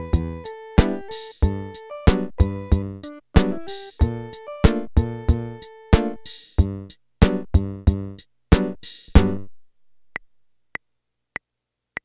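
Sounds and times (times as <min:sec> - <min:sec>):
keyboard drum-machine song: 0:00.0 - 0:09.5.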